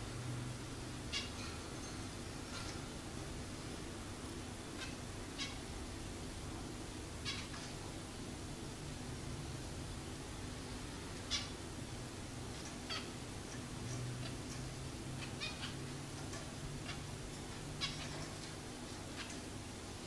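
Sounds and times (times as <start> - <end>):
low steady hum: 0.0 - 20.0
finches calling: 12.5 - 19.5.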